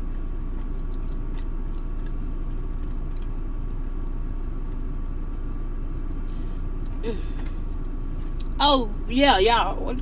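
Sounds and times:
car cabin hum: 0:00.0 - 0:10.0
mouth clicks of chewing: 0:00.5 - 0:02.2.

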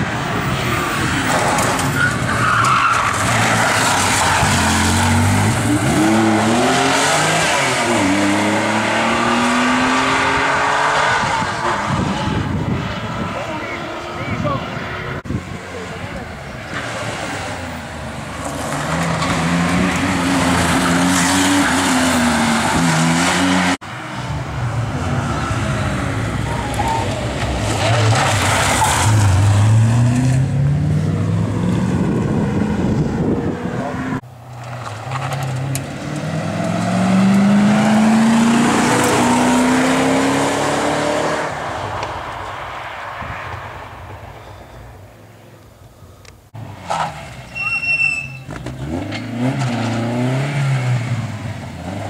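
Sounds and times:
rally cars accelerating past: 0:25.0 - 0:42.4.

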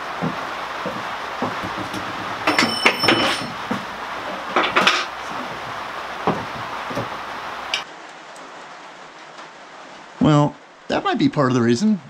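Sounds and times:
rain on roof: 0:00.0 - 0:12.0.

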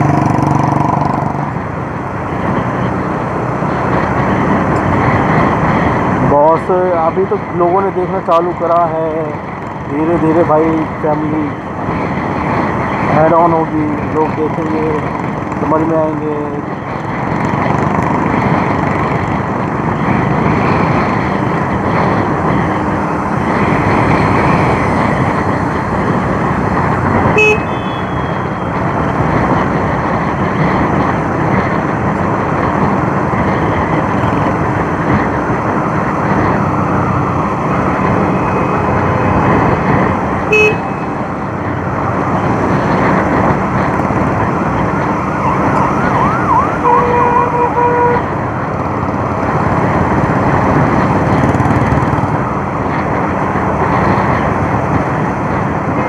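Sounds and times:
motorcycle engine and road noise: 0:00.0 - 0:56.0
brief tone: 0:27.4 - 0:28.4.

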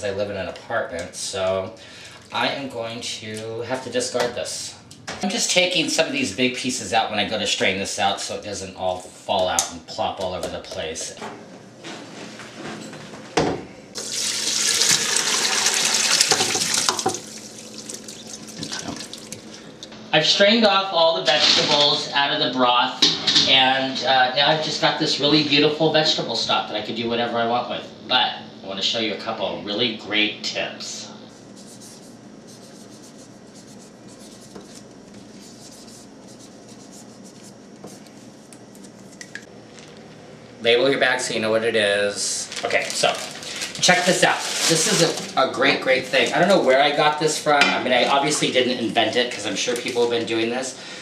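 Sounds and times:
liquid pouring and splashing: 0:14.0 - 0:19.6
marker pen scratching on plastic bag: 0:31.6 - 0:39.2.

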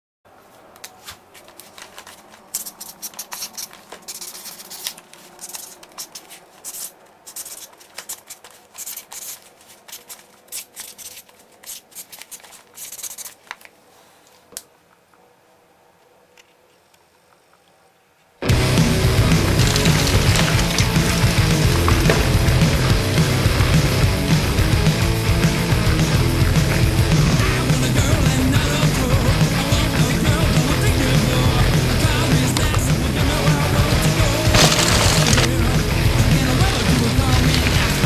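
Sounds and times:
felt-tip pen scratching on card: 0:02.5 - 0:13.4.

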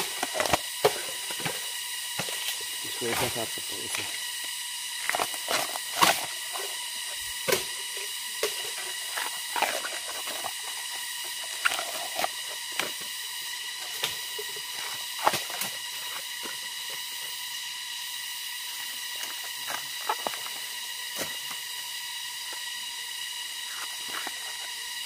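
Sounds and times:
steady high hiss: 0:00.0 - 0:25.0
bamboo sheaths snapping and tearing: 0:02.1 - 0:17.1, 0:23.6 - 0:25.0.

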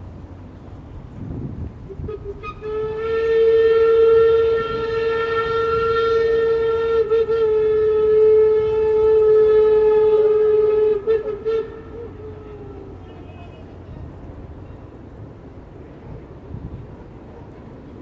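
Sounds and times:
steam locomotive whistle: 0:01.9 - 0:13.8.

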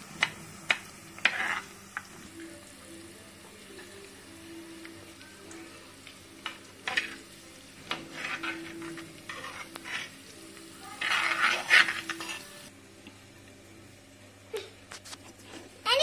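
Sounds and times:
garlic and chillies sizzling in oil: 0:00.0 - 0:16.0
steel spoon scraping a clay pot: 0:01.2 - 0:01.8, 0:07.9 - 0:10.2, 0:10.9 - 0:12.6.

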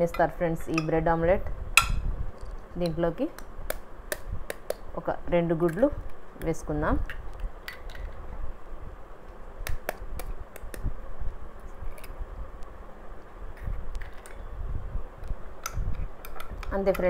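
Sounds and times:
eggshells cracking and tapping: 0:03.4 - 0:04.9.

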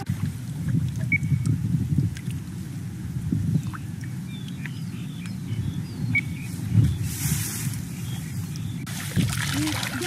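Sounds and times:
muddy water sloshing and dripping: 0:00.0 - 0:02.7, 0:08.4 - 0:10.0.

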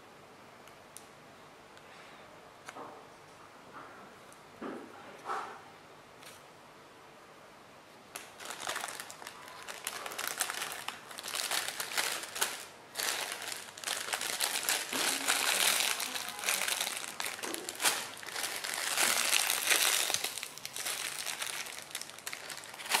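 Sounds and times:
squishy toys crinkling: 0:08.1 - 0:23.0.

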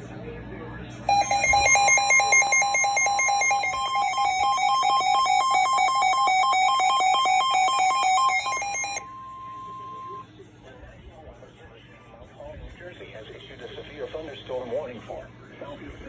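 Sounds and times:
steady high tone: 0:01.1 - 0:10.2
two-pitch alarm beeping: 0:01.1 - 0:10.2.

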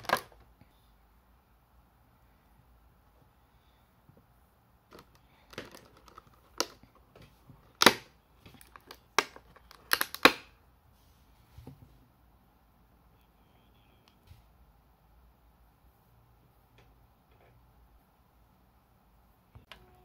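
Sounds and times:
hard plastic parts clicking: 0:04.9 - 0:10.5.

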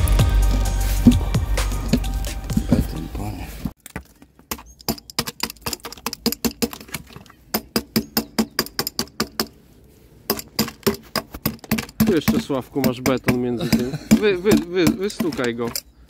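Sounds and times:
metal rod tapping concrete: 0:10.3 - 0:15.9.

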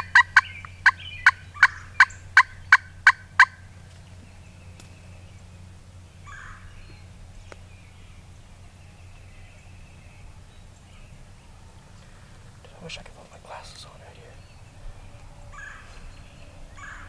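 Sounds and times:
turkey box call notes: 0:00.0 - 0:03.6
faint low hum: 0:00.0 - 0:17.0.

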